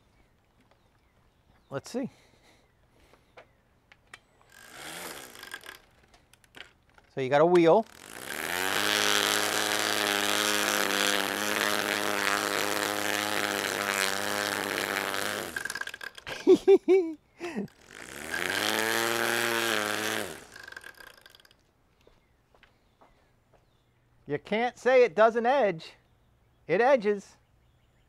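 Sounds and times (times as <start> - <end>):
string trimmer motor running: 4.3 - 21.6.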